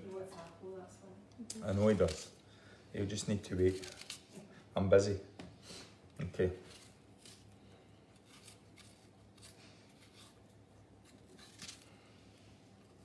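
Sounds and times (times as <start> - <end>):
knife scraping apple: 1.7 - 2.4, 3.3 - 4.4, 6.5 - 11.9.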